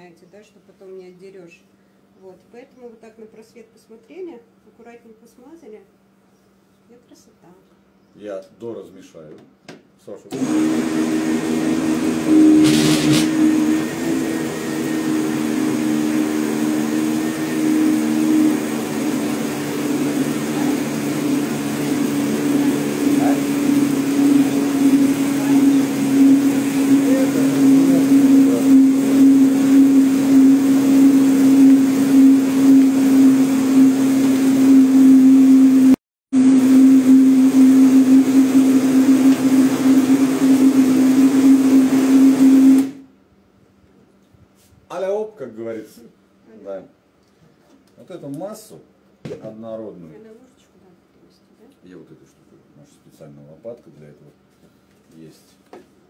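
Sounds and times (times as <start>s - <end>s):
blender motor running: 10.3s - 43.1s.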